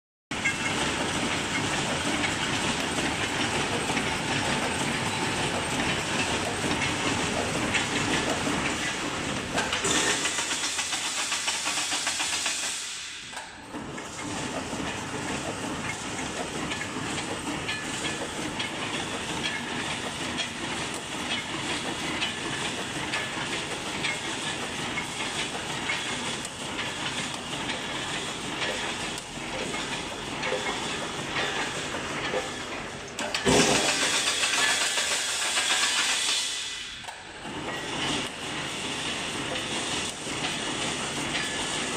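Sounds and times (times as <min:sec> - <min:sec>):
welding machine clattering: 0:00.4 - 0:41.9
welding machine hiss: 0:09.6 - 0:13.4, 0:33.5 - 0:37.1.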